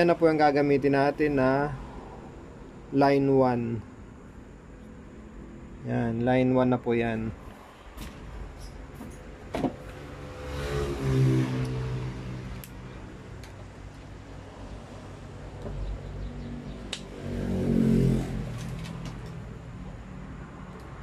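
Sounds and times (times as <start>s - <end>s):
vehicle engine passing by: 9.8s - 13.4s, 14.2s - 20.7s.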